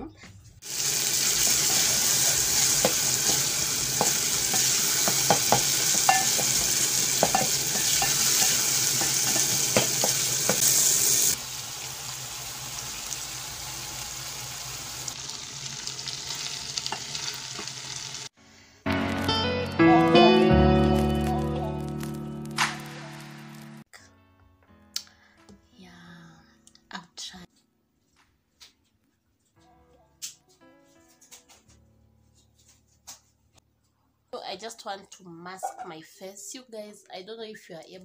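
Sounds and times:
onions and tomatoes sizzling: 0:00.6 - 0:19.5, 0:20.1 - 0:23.8.

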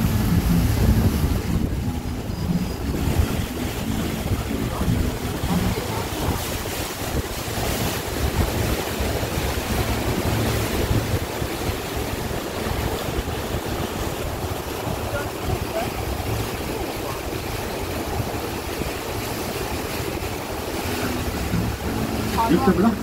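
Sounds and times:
water rushing along hull: 0:00.0 - 0:23.0
wind buffeting microphone: 0:00.0 - 0:23.0.

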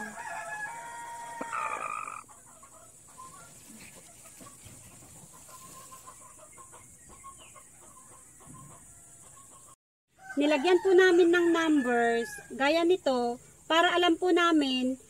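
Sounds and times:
hen drawn-out call: 0:00.0 - 0:02.3
hen soft clucks: 0:01.4 - 0:09.8.

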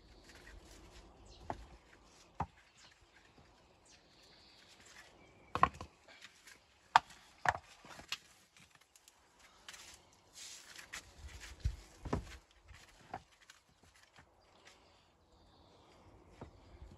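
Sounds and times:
stones knocking: 0:05.5 - 0:05.9, 0:06.9 - 0:08.2.

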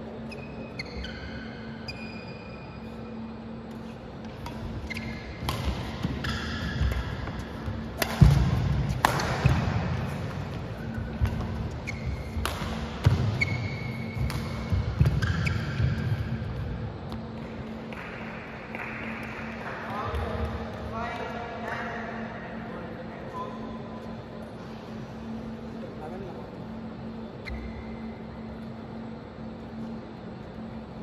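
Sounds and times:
shoes squeaking on court floor: 0:00.2 - 0:08.5, 0:09.1 - 0:17.4, 0:27.4 - 0:28.1
racket striking shuttlecock: 0:04.4 - 0:16.3.

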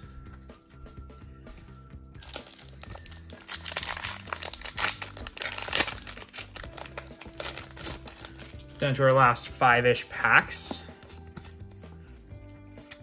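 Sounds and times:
soft background music: 0:00.0 - 0:13.0
foil wrapper crinkling and tearing: 0:02.2 - 0:08.7.

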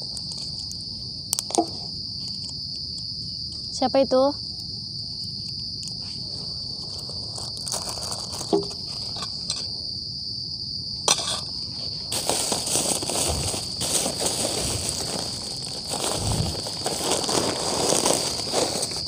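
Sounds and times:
night insects chirring: 0:00.0 - 0:19.0
plastic bag crinkling: 0:06.8 - 0:09.2, 0:12.1 - 0:19.0
camping gear clicks: 0:12.1 - 0:19.0.

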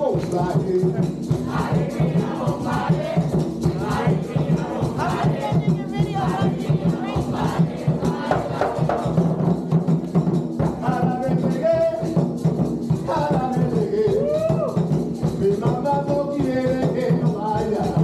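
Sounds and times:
voices singing and calling: 0:00.0 - 0:09.4
hand drums playing rhythm: 0:00.0 - 0:18.0.

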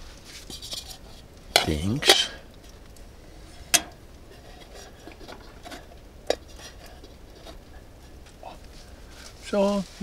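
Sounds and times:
metal pot lid and handle clinking: 0:01.6 - 0:02.4.

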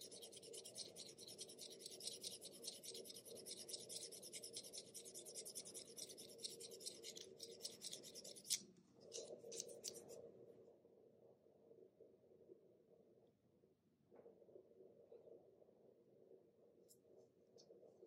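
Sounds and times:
knife blade scraping pencil: 0:00.0 - 0:10.2.

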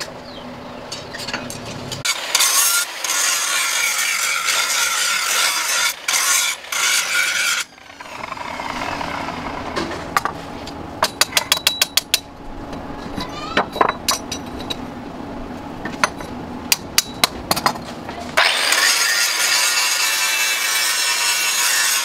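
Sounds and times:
angle grinder grinding steel: 0:02.0 - 0:10.1, 0:18.4 - 0:22.0.

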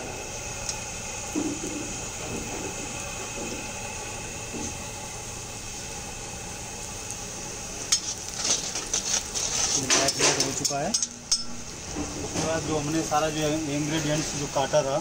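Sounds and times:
onions sizzling in oil: 0:00.0 - 0:15.0
metal skimmer scraping pan: 0:07.9 - 0:12.6.

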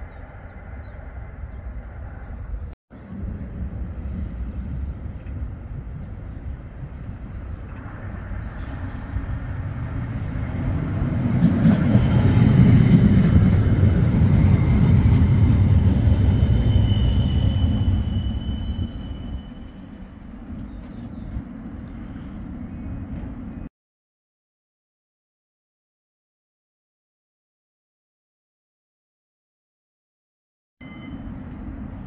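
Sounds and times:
tram wheels rumbling on rails: 0:00.0 - 0:23.7
high-pitched whining tones: 0:10.1 - 0:20.2.

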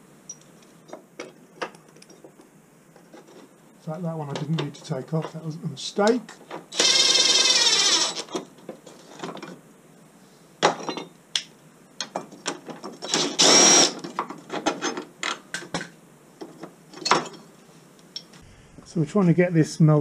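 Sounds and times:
cordless drill running: 0:06.7 - 0:08.4, 0:13.1 - 0:14.0.

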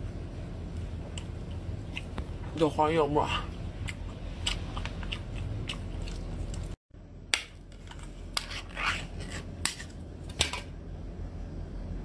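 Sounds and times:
person chewing: 0:01.1 - 0:02.2, 0:03.8 - 0:06.8.

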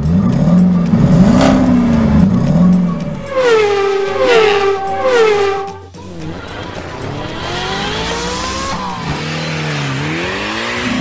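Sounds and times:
race car engine revving: 0:00.0 - 0:11.0
cars speeding past: 0:00.9 - 0:11.0.

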